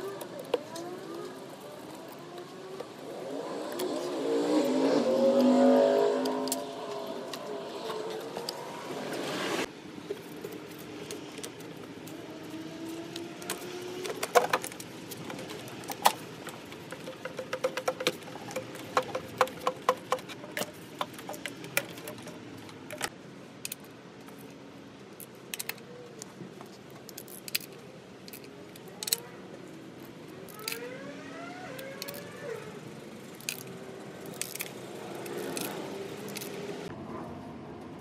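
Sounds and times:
hand tools clicking and clinking: 10.1 - 24.6, 25.2 - 29.3, 30.0 - 30.8, 31.8 - 32.7, 33.3 - 36.8.

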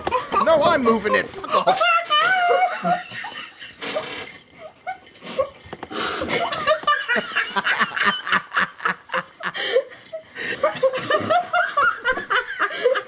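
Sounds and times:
man laughing: 0.2 - 3.8, 6.4 - 9.9, 10.6 - 13.0.

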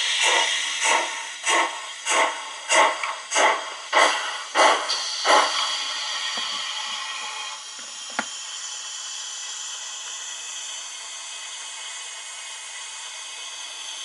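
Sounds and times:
hiss of steam: 0.0 - 14.0
steam locomotive exhaust chuffs: 0.0 - 14.0.

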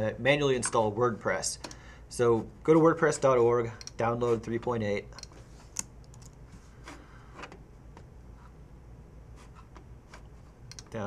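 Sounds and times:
steady low hum: 0.0 - 11.0
computer mouse clicking: 5.2 - 6.4, 10.7 - 11.0.

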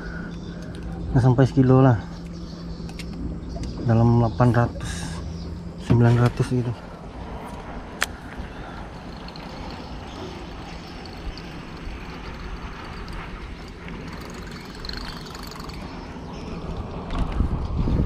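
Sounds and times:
wind buffeting microphone: 6.4 - 18.0.

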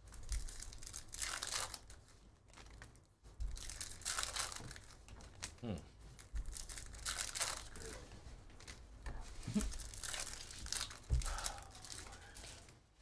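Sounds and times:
foil wrappers tearing and crinkling: 0.1 - 2.9, 3.5 - 5.5, 6.4 - 8.0, 9.4 - 12.7.

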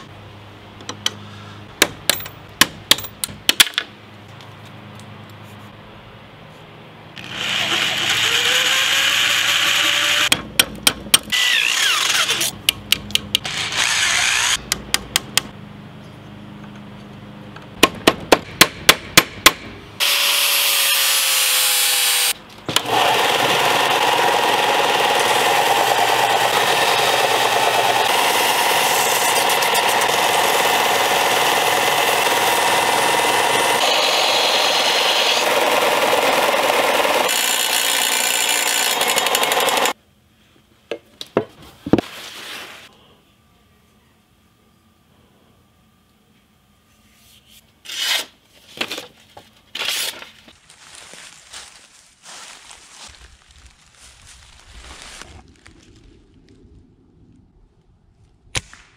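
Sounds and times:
belt sander grinding knife: 13.4 - 14.6.

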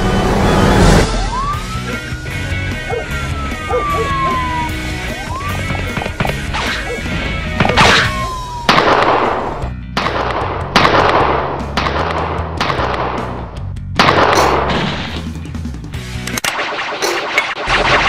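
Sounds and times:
background music: 0.0 - 18.0
pistol shots with echo: 7.7 - 13.4.

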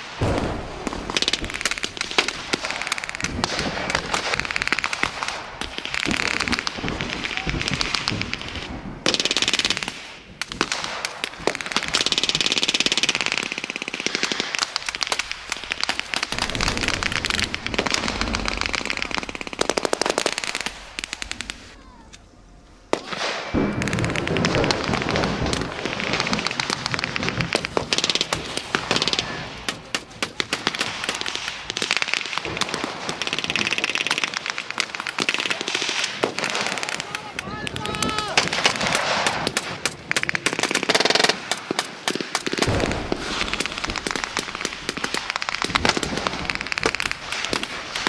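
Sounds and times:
rifle and automatic gunfire: 0.2 - 21.7, 22.9 - 37.2, 37.8 - 48.0.

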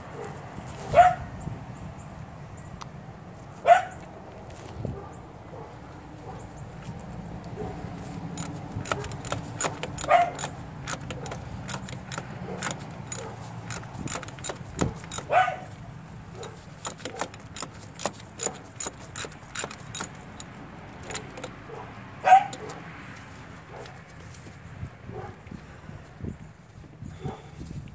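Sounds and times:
ratchet wrench clicking: 8.4 - 15.4, 16.4 - 21.6
short squeaks: 8.4 - 15.7, 16.3 - 22.8.

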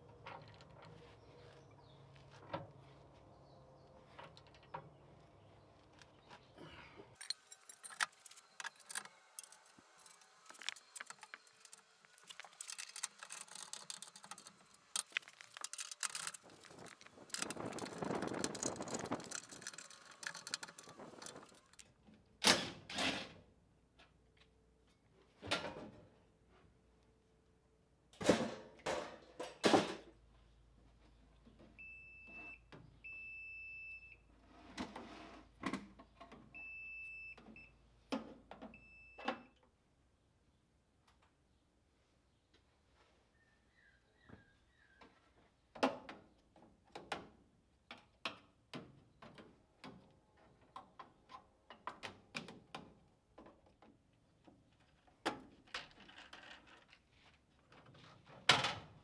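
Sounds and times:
metal brackets clattering on concrete: 7.2 - 21.8.

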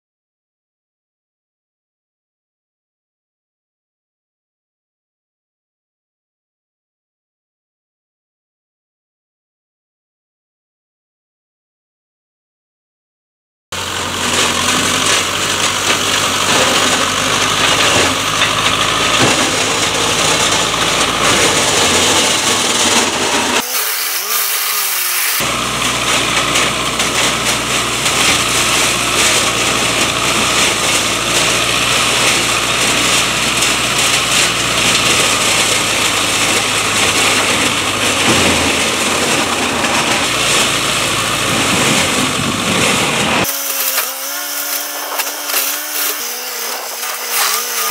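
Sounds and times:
tractor diesel engine under load: 13.7 - 47.9
flail mulcher shredding bushes: 13.8 - 47.9.

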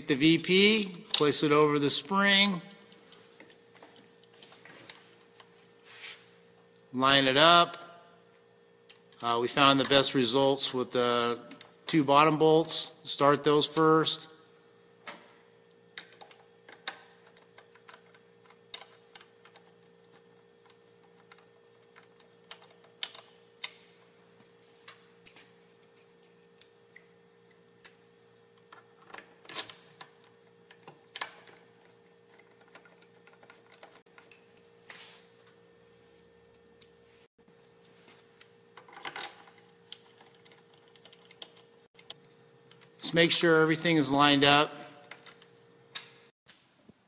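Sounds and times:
faint steady hum: 0.0 - 47.0
short scrapes: 5.8 - 6.3.

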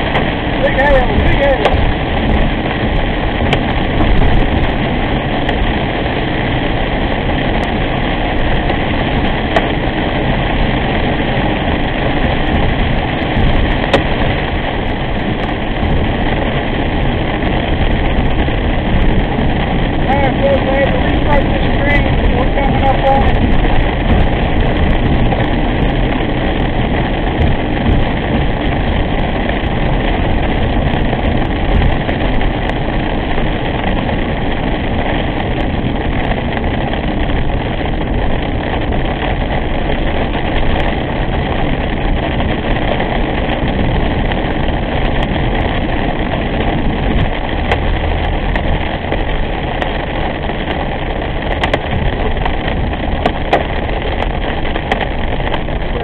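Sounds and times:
car engine running: 0.0 - 56.0
light ticks: 51.5 - 51.9.

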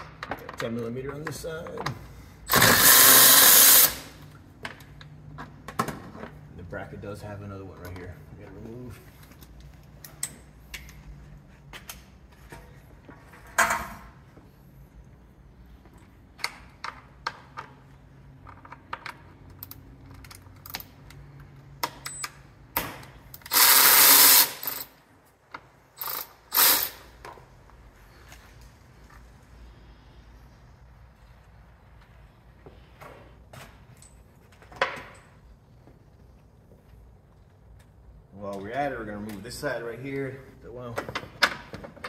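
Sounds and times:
cordless ratchet running: 2.5 - 4.0, 23.4 - 24.9, 26.0 - 27.0
tool and fasteners clinking: 16.4 - 27.4.

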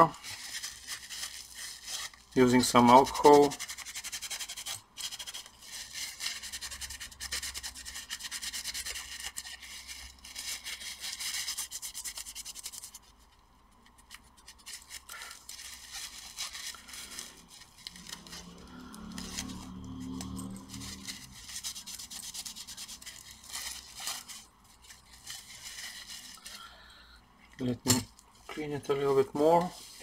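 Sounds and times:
tissue rubbing on metal: 0.0 - 26.7, 27.7 - 30.0.

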